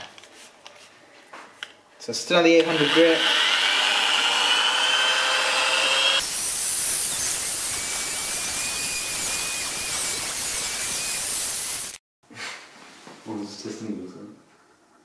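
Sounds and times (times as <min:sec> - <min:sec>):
electric drill motor whine: 0:02.6 - 0:06.4, 0:07.1 - 0:11.9.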